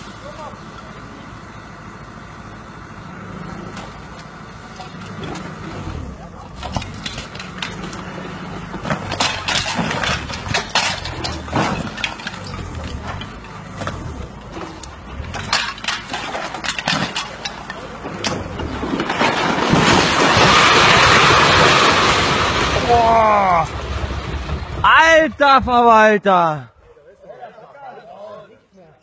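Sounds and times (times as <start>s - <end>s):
excavator diesel engine running: 0.0s - 26.0s
masonry and timber crashing: 3.7s - 26.0s.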